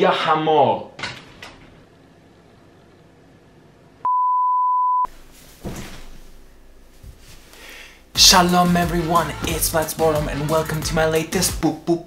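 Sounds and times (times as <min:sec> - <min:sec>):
electronic beep: 0:04.1 - 0:05.1
light rustling: 0:05.2 - 0:07.6.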